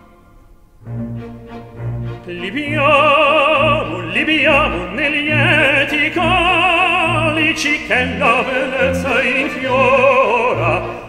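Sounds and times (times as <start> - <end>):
orchestra playing: 0.0 - 11.0
operatic solo voice with vibrato: 2.2 - 11.0.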